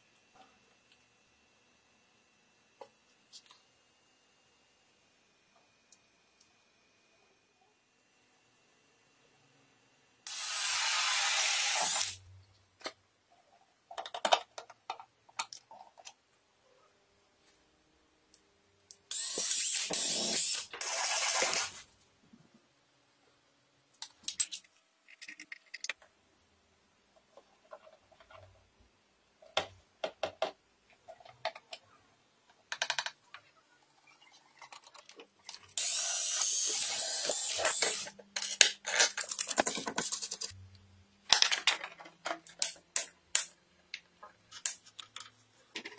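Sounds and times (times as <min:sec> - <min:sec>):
power drill running: 0:10.3 - 0:12.2, 0:19.1 - 0:21.7, 0:35.8 - 0:38.1
clicks of small parts handled: 0:24.0 - 0:26.1, 0:41.3 - 0:45.9.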